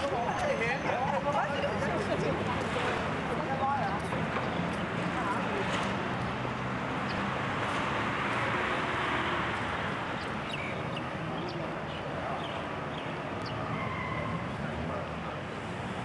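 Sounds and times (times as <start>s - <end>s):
outdoor background noise: 0.0s - 16.0s.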